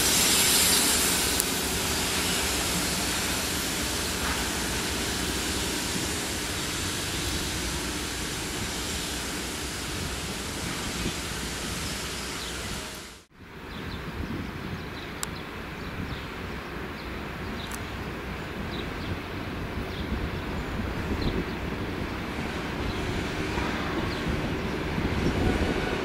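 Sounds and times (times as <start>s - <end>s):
grinding stones hissing on rails: 0.0s - 13.3s, 21.1s - 26.0s
train low rumble: 0.0s - 26.0s.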